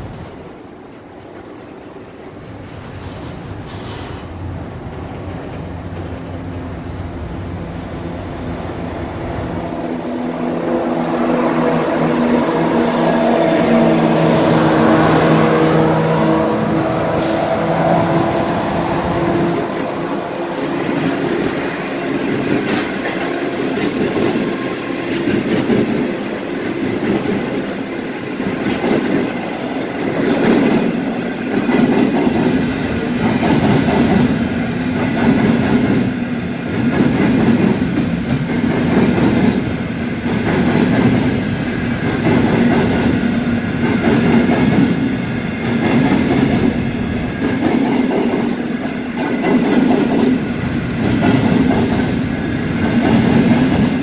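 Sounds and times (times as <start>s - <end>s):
train wheels clacking over rail joints: 0.0s - 4.3s, 19.2s - 54.0s
diesel locomotive engine hum: 0.0s - 54.0s.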